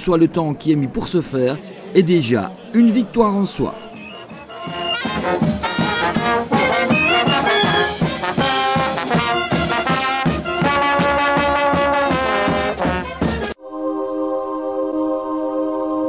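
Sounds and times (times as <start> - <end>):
brass band playing lively tune: 3.7 - 13.6.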